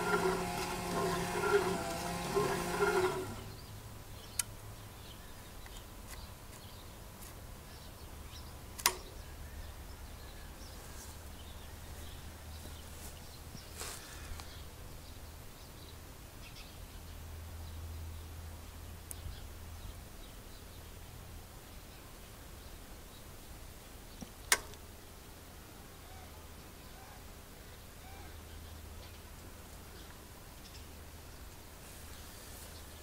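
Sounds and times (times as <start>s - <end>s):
small electric motor whining: 0.0s - 3.6s
low steady hum: 0.0s - 5.7s
sharp clicks: 8.8s - 9.1s, 24.2s - 24.8s.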